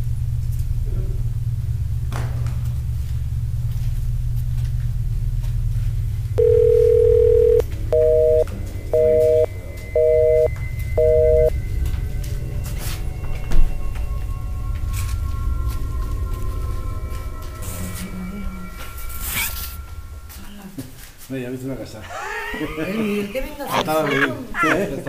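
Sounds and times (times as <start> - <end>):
steady low rumble: 0.0 - 21.2
telephone tone: 6.4 - 11.5
busy signal beeping: 6.4 - 11.6.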